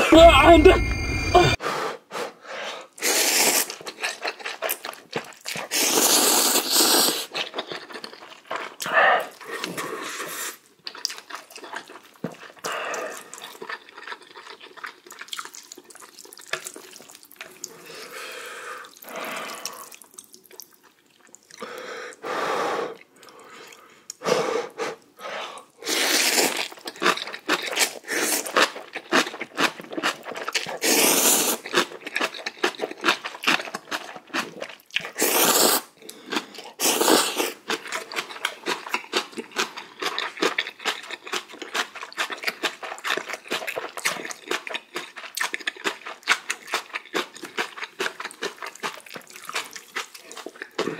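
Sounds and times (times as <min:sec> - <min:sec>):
person slurping noodles: 0:00.0 - 0:01.8, 0:02.8 - 0:04.4, 0:05.6 - 0:07.4, 0:08.8 - 0:10.6, 0:22.4 - 0:26.8, 0:30.6 - 0:31.8, 0:35.1 - 0:37.6
wet chewing: 0:03.5 - 0:18.2, 0:18.8 - 0:21.6, 0:26.0 - 0:50.9.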